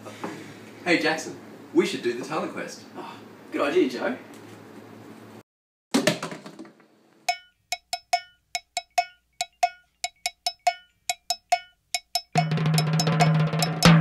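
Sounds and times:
music track: 7.3s - 14.0s
ringing percussion clinks: 7.3s - 14.0s.

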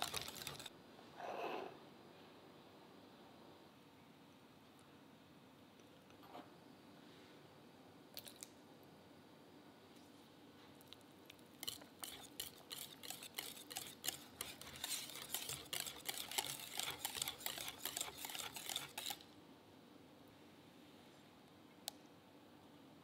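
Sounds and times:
whisk scraping glass bowl: 0.0s - 0.7s, 11.6s - 19.2s.

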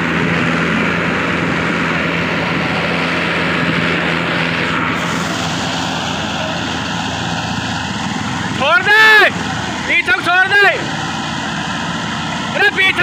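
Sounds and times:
diesel tractors droning under load: 0.0s - 13.0s.

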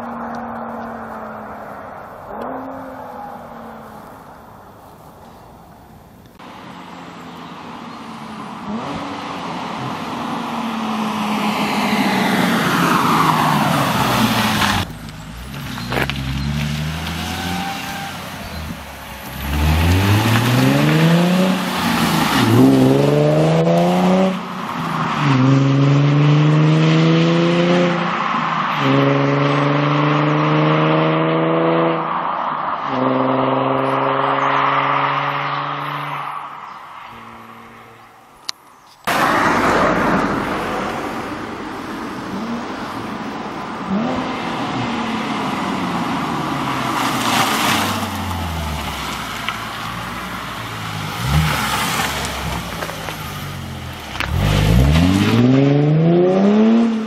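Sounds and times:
car engine passing by: 6.6s - 38.2s, 39.1s - 57.0s
car engine revving through gears: 7.3s - 28.1s, 28.8s - 32.1s, 32.9s - 36.2s, 43.8s - 57.0s.

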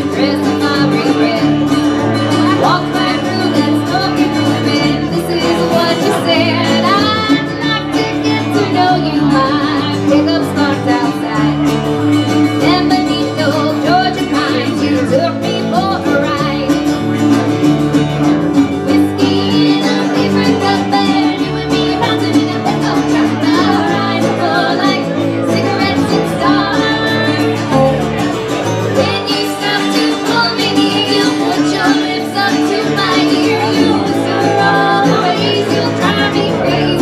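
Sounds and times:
woman singing: 0.0s - 17.1s, 18.6s - 28.2s, 28.8s - 37.0s
resonator guitar: 0.0s - 37.0s
strummed acoustic guitar: 0.0s - 37.0s.

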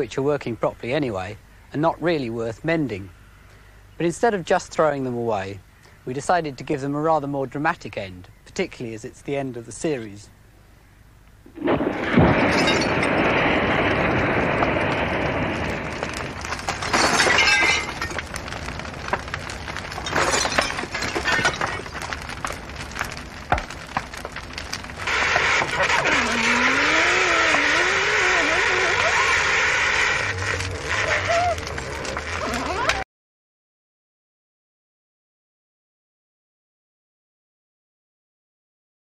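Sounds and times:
fire crackling: 11.1s - 33.0s
rush of fire: 11.5s - 33.0s
glass shattering: 11.6s - 13.4s, 16.1s - 18.5s, 19.9s - 22.5s.

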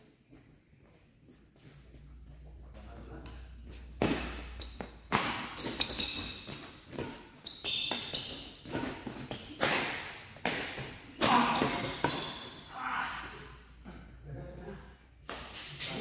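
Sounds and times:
badminton rackets hitting shuttlecock: 3.3s - 12.6s.

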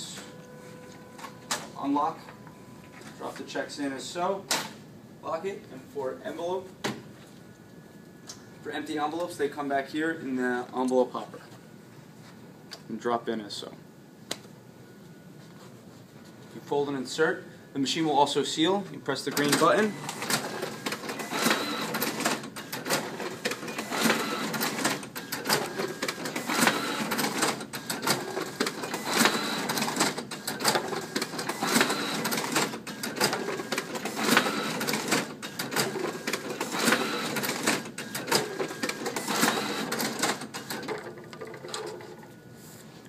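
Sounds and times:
folder inserter machine whirring: 19.3s - 42.0s.

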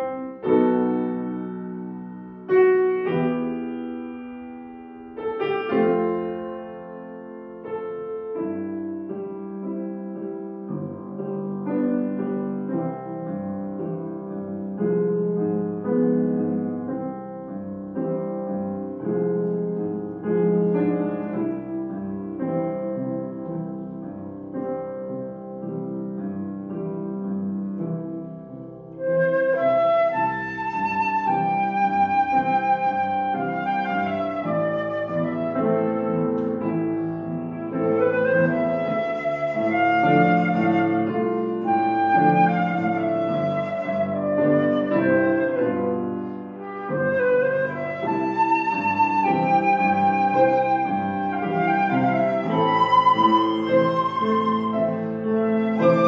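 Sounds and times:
grand piano playing slow piece: 0.0s - 56.0s
flute holding notes: 29.0s - 56.0s.

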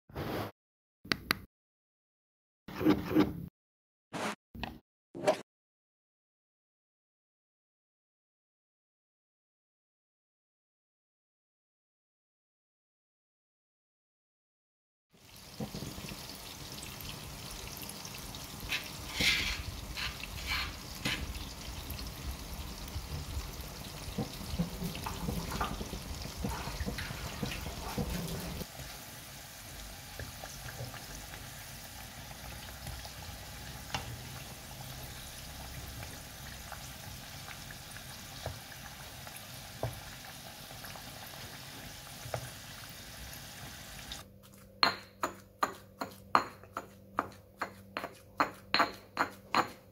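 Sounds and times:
potatoes sizzling in oil: 15.2s - 44.2s
pot boiling and bubbling: 15.2s - 49.8s
pestle pounding in stone mortar: 44.8s - 49.9s.

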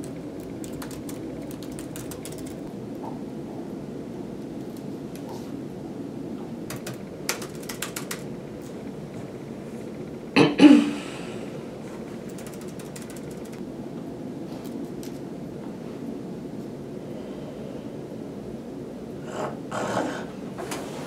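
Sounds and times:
keyboard keys clicking: 0.0s - 2.7s, 6.7s - 8.3s, 12.2s - 13.6s, 14.6s - 15.2s
low room hum: 0.0s - 21.0s.

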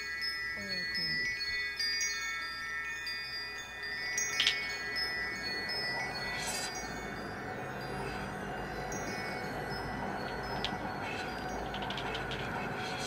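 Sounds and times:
chime-like sustained electronic tones: 0.0s - 13.0s.

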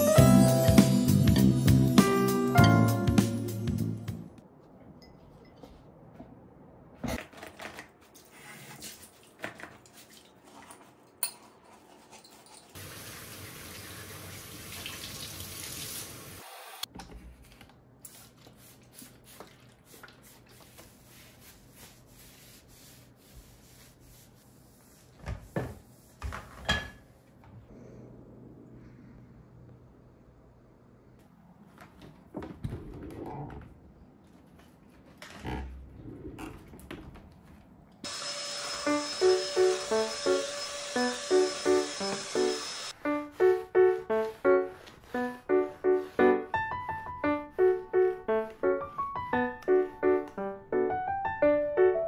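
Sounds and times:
kitchen tap running: 12.8s - 16.4s
wiping stovetop: 18.0s - 27.3s, 42.0s - 49.2s
dishes and cutlery clinking: 26.6s - 27.1s.

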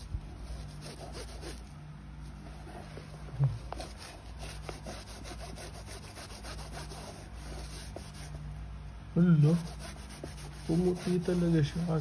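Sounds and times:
wipe scrubbing rubber sole: 0.4s - 1.7s, 2.7s - 8.4s, 9.4s - 12.0s.

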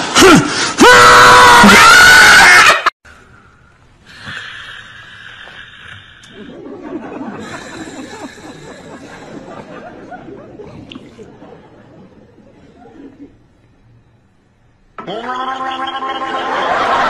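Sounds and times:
man shouting loudly: 15.0s - 16.6s.

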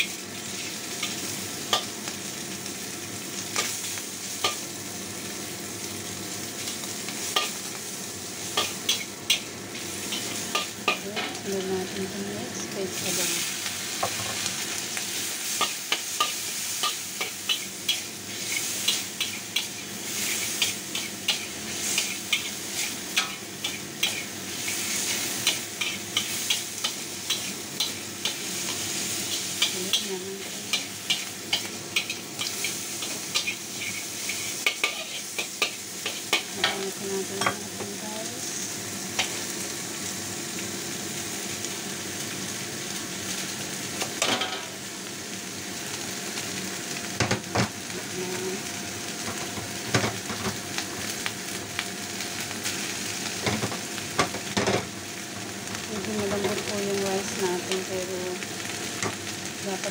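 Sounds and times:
food sizzling in a wok: 0.0s - 59.9s
metal spatula scraping a wok: 30.4s - 36.4s.

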